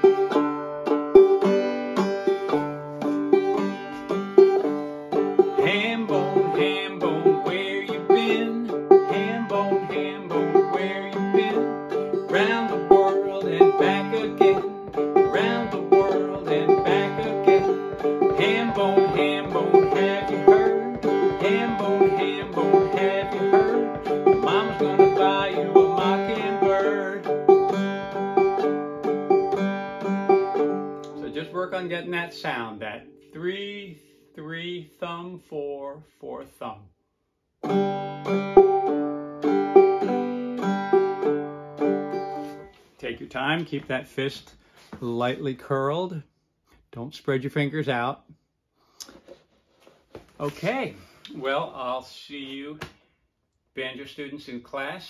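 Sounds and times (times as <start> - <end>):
banjo playing: 0.0 - 34.2, 37.6 - 43.2.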